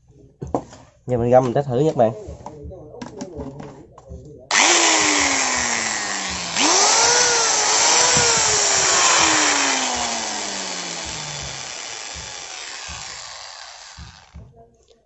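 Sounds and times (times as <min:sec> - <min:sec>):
angle grinder whining: 0:04.5 - 0:14.4.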